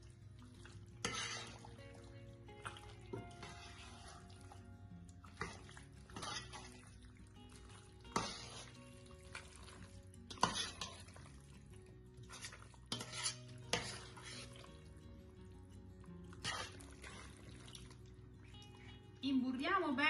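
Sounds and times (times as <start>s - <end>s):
faint background music: 0.0s - 20.0s
metal spoon scraping pot: 1.0s - 1.9s, 2.6s - 4.6s, 5.3s - 7.0s, 8.1s - 11.4s, 12.2s - 14.9s, 16.3s - 17.5s.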